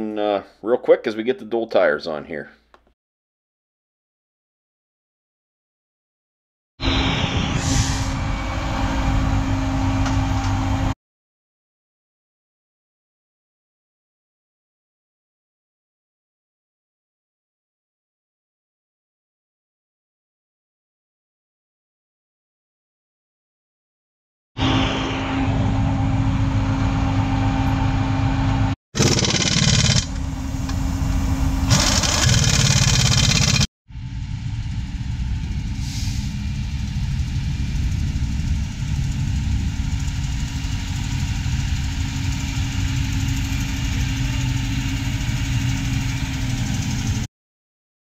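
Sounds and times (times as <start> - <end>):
heavy diesel engine running: 6.8 - 10.9, 24.6 - 47.3
hiss: 35.7 - 36.5.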